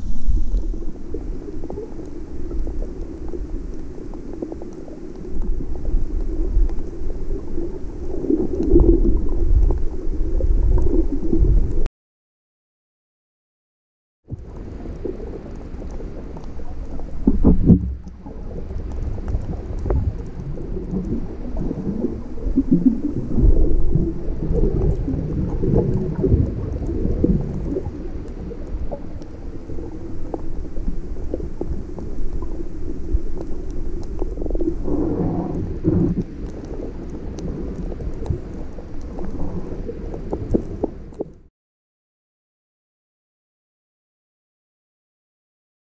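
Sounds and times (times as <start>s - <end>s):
underwater rumble of moving water: 0.0s - 11.9s, 14.3s - 41.5s
knocks and crackles: 16.9s - 18.2s.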